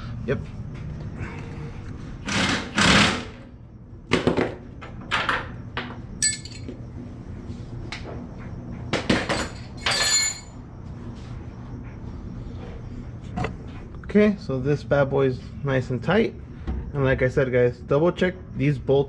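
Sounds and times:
wrench clinking on steel: 0:06.2 - 0:06.7.

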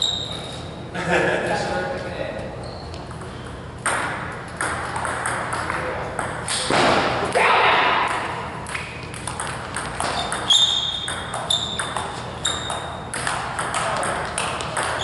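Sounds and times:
ping pong ball clicking off paddles: 0:03.1 - 0:06.7, 0:08.0 - 0:15.0
ball bouncing on table: 0:03.8 - 0:07.1, 0:08.0 - 0:15.0.

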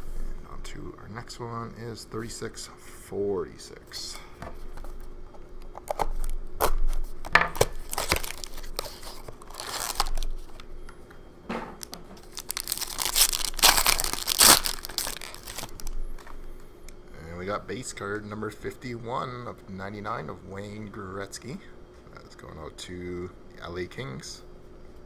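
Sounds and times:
foil pack crinkling and tearing: 0:05.8 - 0:10.6, 0:11.8 - 0:16.4
plastic wrap being torn off: 0:05.8 - 0:10.6, 0:11.8 - 0:16.0.

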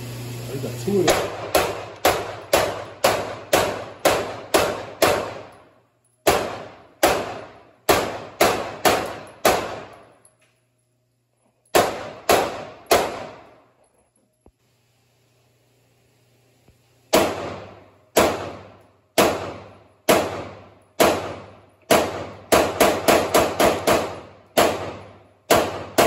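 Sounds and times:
pistol shots echoing indoors: 0:01.1 - 0:10.4, 0:11.6 - 0:13.8, 0:17.1 - 0:26.0.

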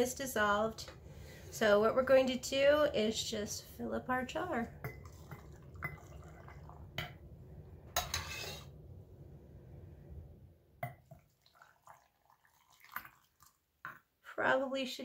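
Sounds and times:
brine pouring into jar: 0:11.1 - 0:13.6.

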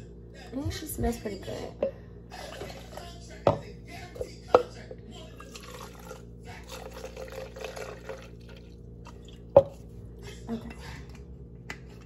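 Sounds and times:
liquid pouring into a cup: 0:02.3 - 0:03.2, 0:05.2 - 0:09.9.

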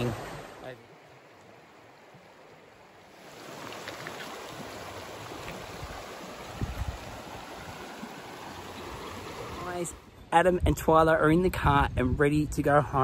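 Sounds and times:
river water flowing: 0:00.0 - 0:10.4.

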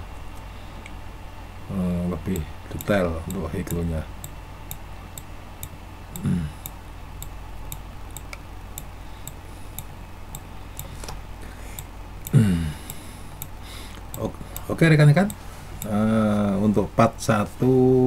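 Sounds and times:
faint steady hum: 0:00.0 - 0:18.0
computer clicking: 0:02.3 - 0:11.0.

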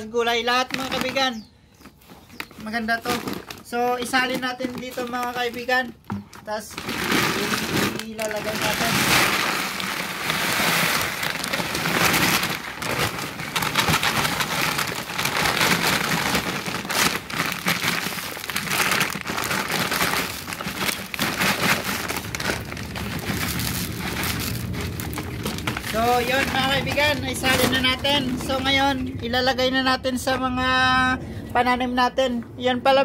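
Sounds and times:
granules pattering into a basin: 0:06.6 - 0:28.8.

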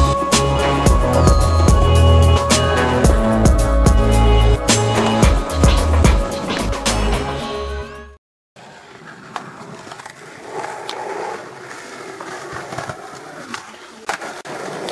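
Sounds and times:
skateboard wheels rolling on concrete: 0:08.6 - 0:14.9.

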